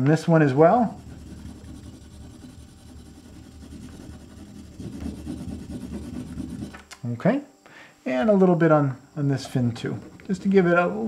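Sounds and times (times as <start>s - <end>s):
crayon rubbing on paper: 0.7s - 6.8s.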